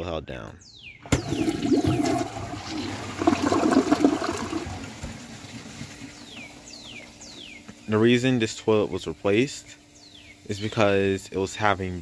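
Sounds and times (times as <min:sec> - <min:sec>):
toilet flushing: 0:01.0 - 0:06.3
water gurgling: 0:01.1 - 0:06.2.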